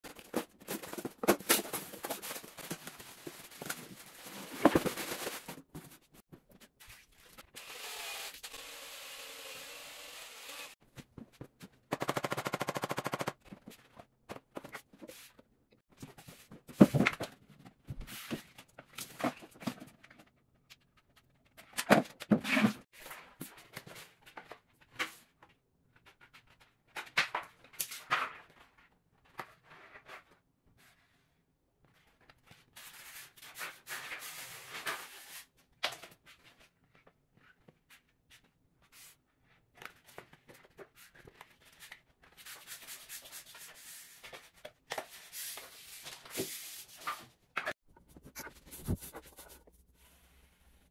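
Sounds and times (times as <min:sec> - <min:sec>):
plastic bag rustling: 0:00.0 - 0:06.0.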